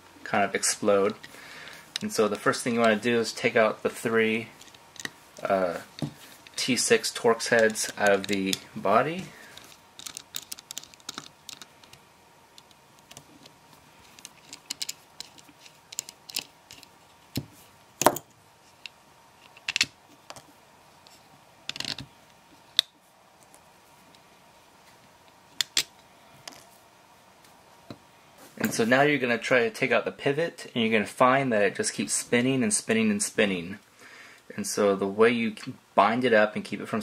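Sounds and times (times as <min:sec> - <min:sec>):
screwdriver and screws clicking: 0:14.2 - 0:16.9.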